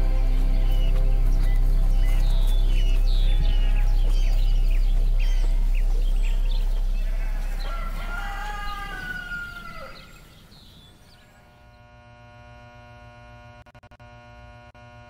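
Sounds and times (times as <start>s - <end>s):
low background music: 0.0s - 10.0s
electric hum: 0.0s - 15.0s
rooster crowing: 6.3s - 10.4s.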